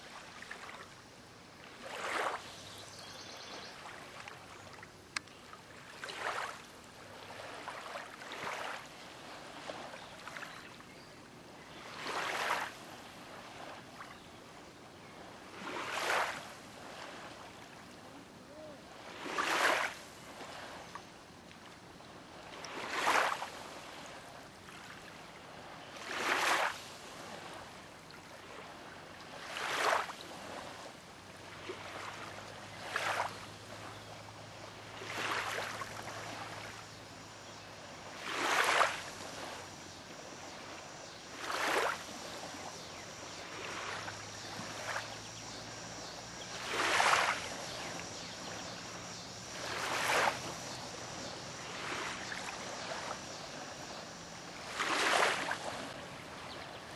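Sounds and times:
small waves splashing on gravel: 46.5 - 48.6, 54.6 - 56.0.

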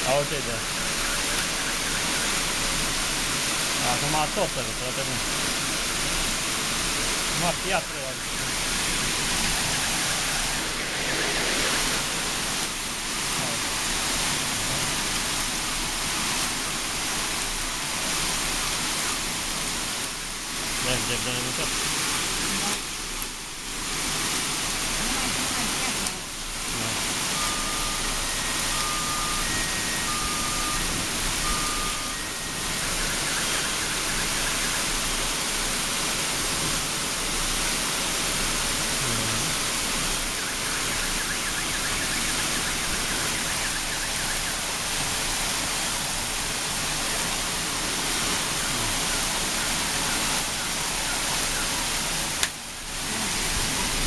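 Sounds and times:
heavy rain and hail falling: 0.0 - 54.0
electronic beeps alternating pitch: 27.3 - 34.5.

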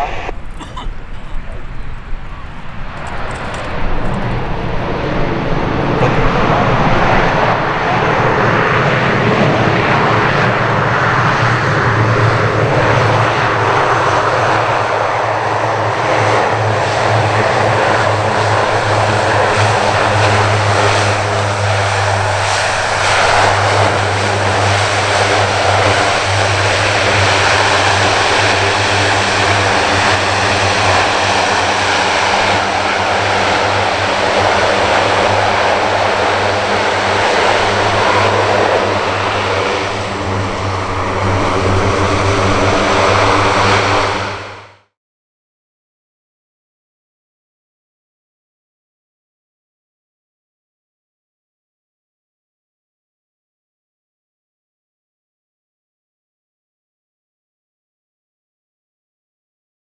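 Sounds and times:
deep propeller hum: 0.0 - 44.9
turboprop engines running: 0.0 - 44.9.

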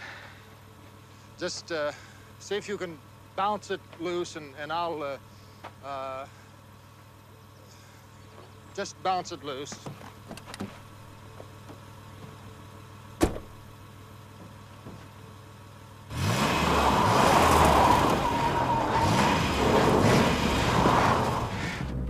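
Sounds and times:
car door slamming: 13.2 - 13.7
car engine revving hard: 16.1 - 22.0
wheel spinning in loose dirt: 16.1 - 22.0.

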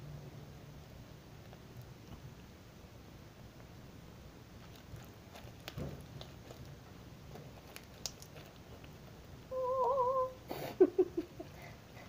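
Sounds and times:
slime crackling and squishing: 4.5 - 9.5.

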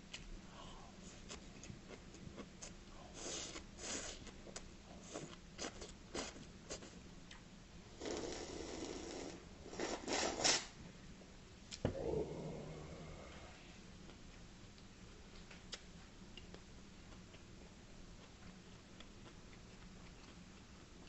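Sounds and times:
slurping and gulping: 8.0 - 10.6
chewing: 15.3 - 21.0.

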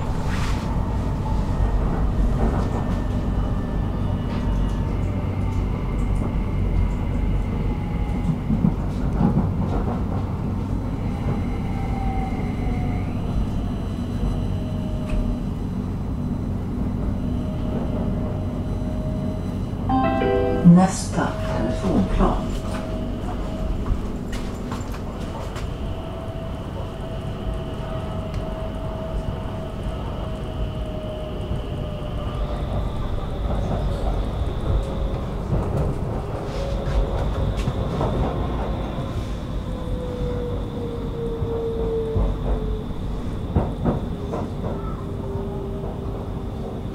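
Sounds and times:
train wheels rumbling on rails: 0.0 - 19.9, 20.9 - 46.9.

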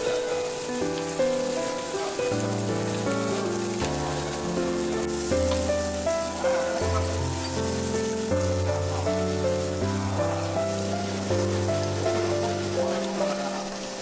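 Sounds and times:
meat sizzling on a grill: 0.0 - 14.0
slow piano music: 0.0 - 14.0.

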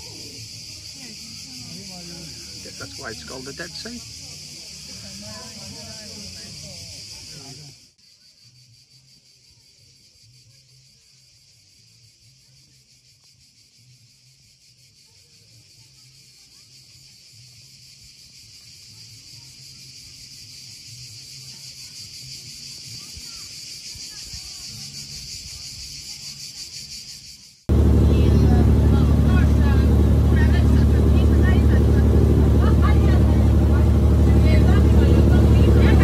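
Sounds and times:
cicadas singing: 0.0 - 36.0
faint low hum: 27.7 - 36.0.

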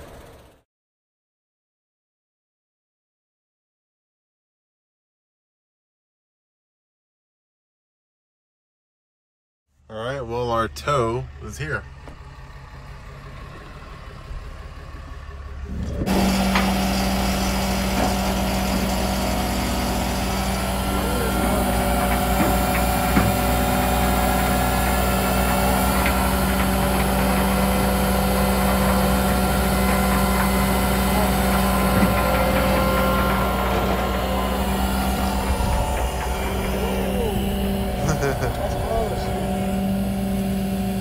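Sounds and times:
vehicle engine running: 9.8 - 41.0.

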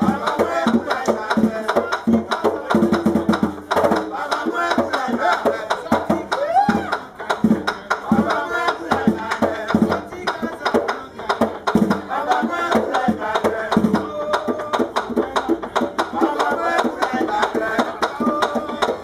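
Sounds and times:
hand drum beating a rhythm: 0.0 - 19.0
sung chant: 0.0 - 19.0.

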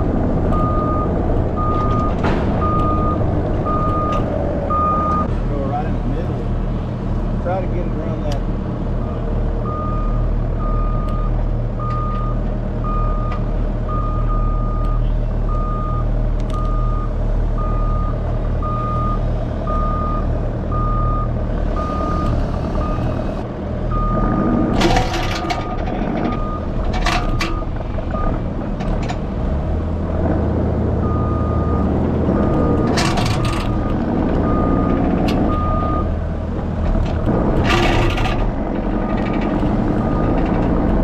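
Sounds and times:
engine running: 0.0 - 41.0
backup alarm beeping: 0.5 - 5.3, 16.6 - 23.2.

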